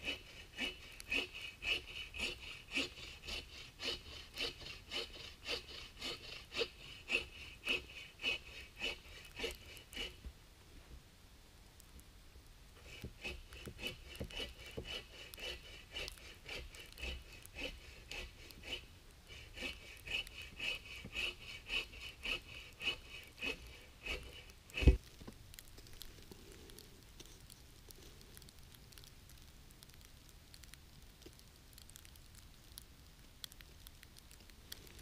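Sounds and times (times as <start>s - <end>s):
hand saw cutting wood: 0.0s - 10.2s, 12.8s - 25.0s.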